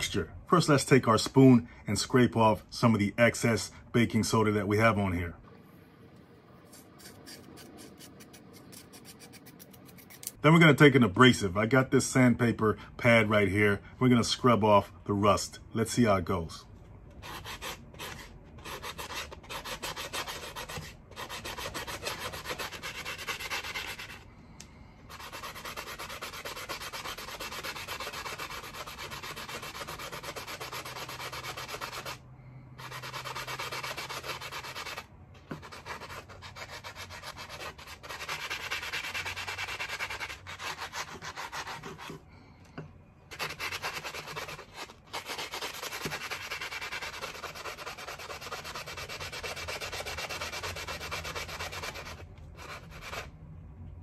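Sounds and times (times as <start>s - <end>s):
sanding sponge scrubbing metal: 6.7s - 10.2s, 17.2s - 24.2s, 25.1s - 32.2s, 32.8s - 42.2s, 43.3s - 53.3s.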